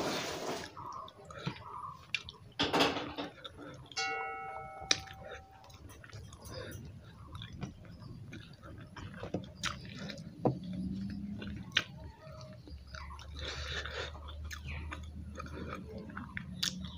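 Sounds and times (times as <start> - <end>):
person chewing: 0.8 - 2.5, 4.9 - 16.9.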